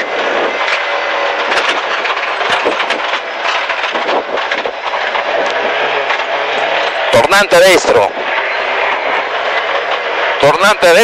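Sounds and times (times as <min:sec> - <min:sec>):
sharp mechanical clicks and knocks: 0:00.2 - 0:07.0.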